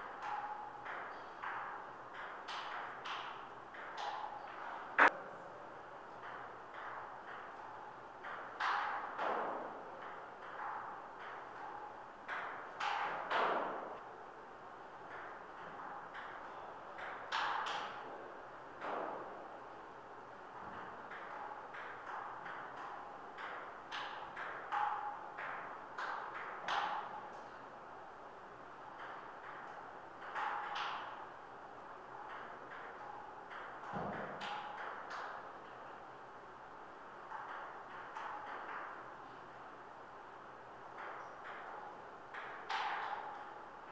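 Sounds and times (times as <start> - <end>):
ping-pong ball clicking off paddles: 0.0 - 5.2, 6.1 - 14.0, 15.0 - 18.2, 20.6 - 27.6, 28.9 - 31.3, 32.2 - 36.0, 37.2 - 39.1, 40.9 - 43.6.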